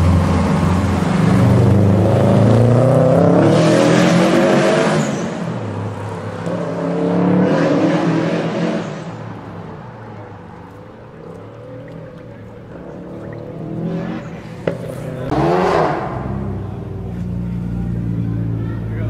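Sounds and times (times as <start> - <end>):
car engine revving hard: 0.0 - 5.4, 12.8 - 16.8.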